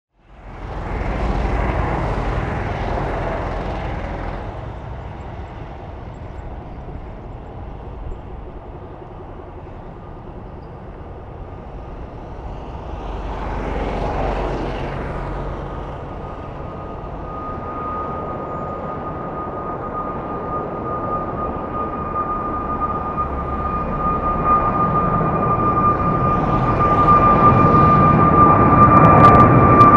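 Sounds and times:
jet engines at takeoff power: 0.1s - 29.9s
high whine: 15.6s - 29.9s.

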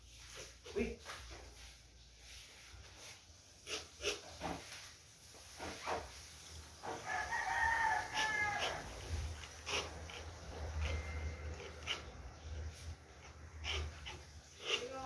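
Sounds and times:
rooster crowing: 6.9s - 9.2s.

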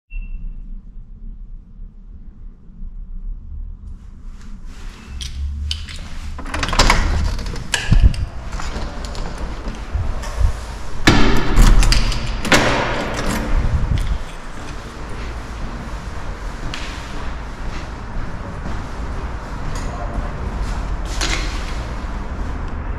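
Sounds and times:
door lock clicking and rattling: 5.7s - 9.8s, 11.1s - 14.4s.

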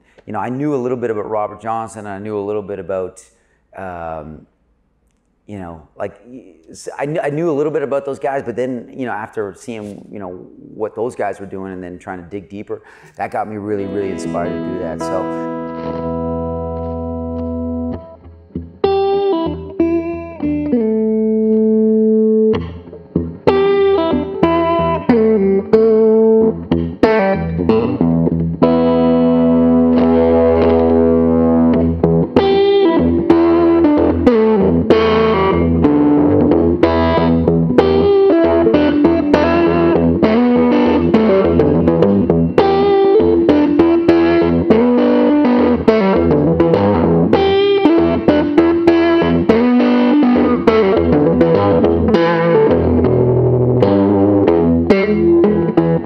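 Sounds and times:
electric guitar picked riff: 12.9s - 56.0s
electric guitar chord ringing: 13.5s - 56.0s.

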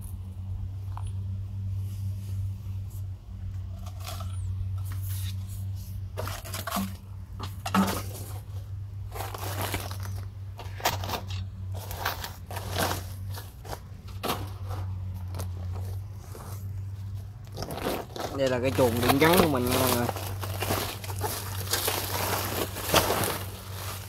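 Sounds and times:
steady low hum: 0.0s - 24.0s
plastic sacks rustling: 6.2s - 24.0s.

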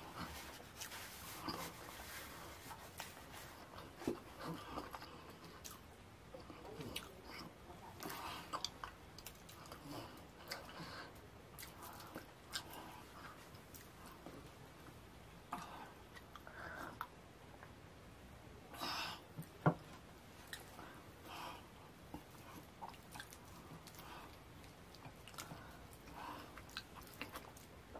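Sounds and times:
chewing: 11.6s - 14.3s, 22.1s - 27.8s.

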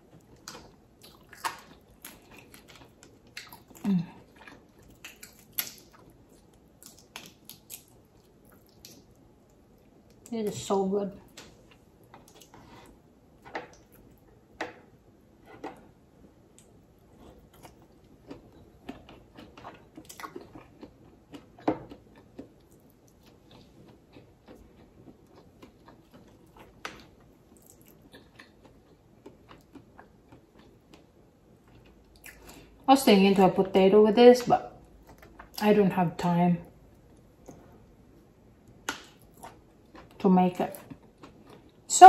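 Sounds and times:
chewing and mouth sounds: 0.0s - 10.3s, 11.3s - 13.0s, 16.5s - 32.7s, 38.7s - 41.9s.

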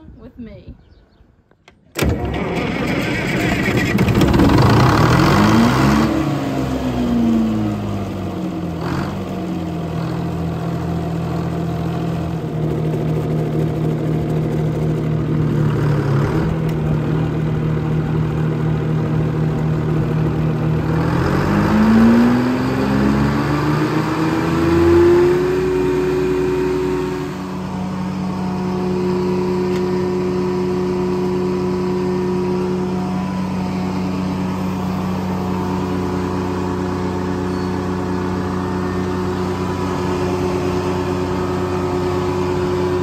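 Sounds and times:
engine starting and revving: 1.9s - 7.9s, 15.3s - 17.0s, 20.8s - 27.8s.

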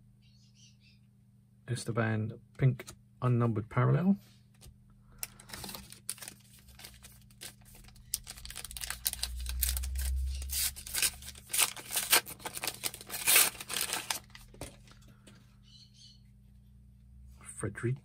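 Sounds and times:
foil card pack tearing and crinkling: 5.2s - 15.0s.

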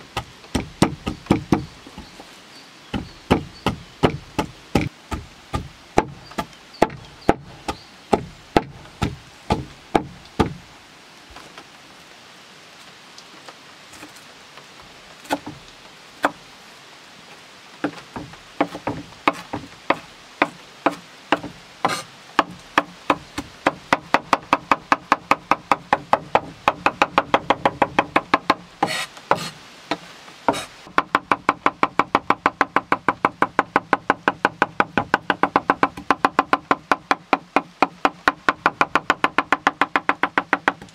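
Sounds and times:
knife chopping on wooden board: 0.2s - 2.1s, 3.0s - 10.6s.

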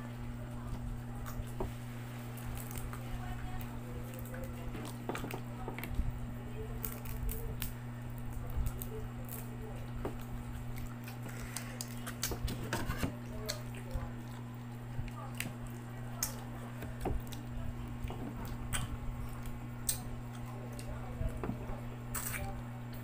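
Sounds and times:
steady low hum: 0.0s - 23.0s
crab shell cracking: 2.3s - 6.0s, 6.8s - 12.6s, 13.2s - 20.9s.

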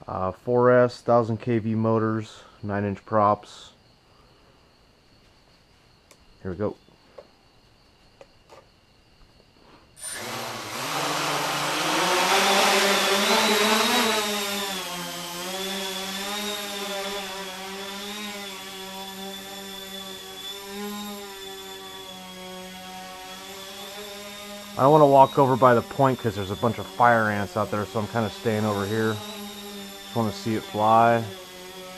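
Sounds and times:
drone motors humming: 9.6s - 31.9s.

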